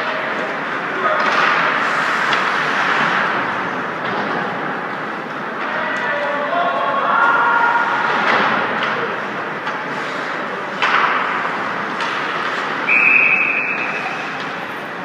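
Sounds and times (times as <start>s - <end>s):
ice rink crowd haze: 0.0s - 15.0s
puck knocking against boards: 10.8s - 12.7s
referee's whistle blast: 12.9s - 14.0s.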